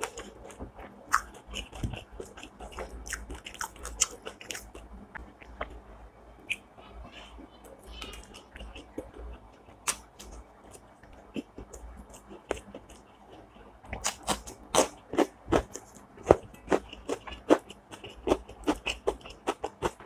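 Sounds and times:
chewing food with smacks and crunches: 0.0 - 5.9, 6.5 - 20.0.

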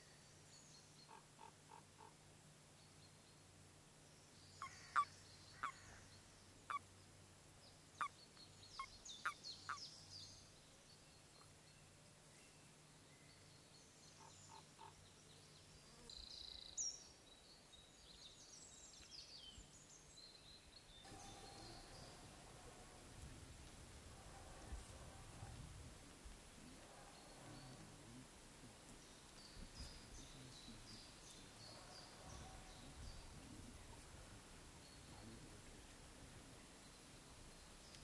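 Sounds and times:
toads croaking: 4.6 - 6.0.

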